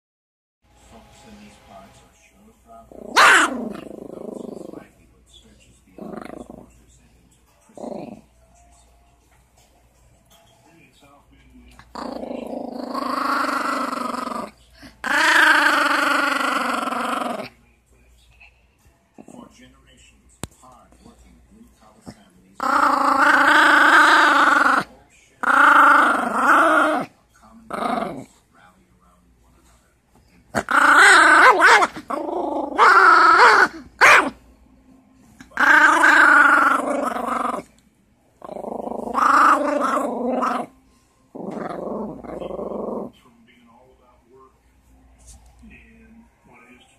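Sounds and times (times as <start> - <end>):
small dog growling: 2.9 - 5.0, 5.9 - 6.8, 7.7 - 8.4, 11.7 - 17.6, 22.0 - 28.5, 30.5 - 34.4, 35.4 - 37.8, 38.4 - 43.2.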